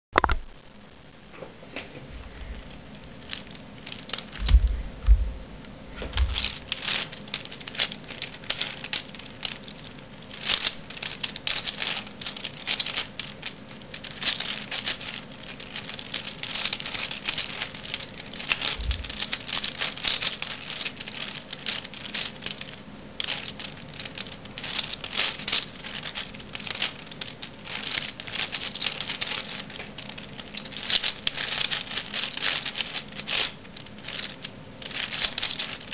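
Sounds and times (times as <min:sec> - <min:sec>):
puzzle cube plastic clicks: 0:00.2 - 0:00.5, 0:06.2 - 0:35.9
dull thumps: 0:04.4 - 0:06.6, 0:18.7 - 0:19.2.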